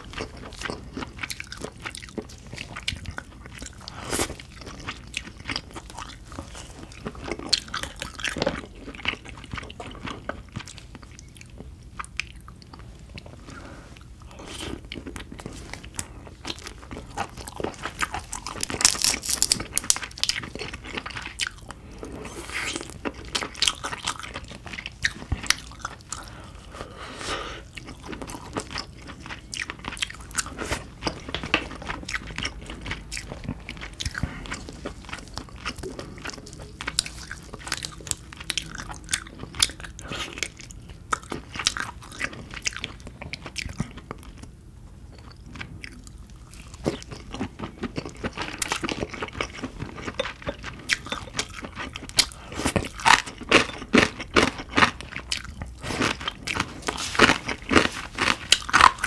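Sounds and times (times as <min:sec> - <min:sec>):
chewing: 0:00.0 - 0:27.0, 0:27.6 - 0:44.5, 0:45.1 - 0:59.0
crab shell crunching and cracking: 0:16.3 - 0:21.8, 0:45.9 - 0:59.0.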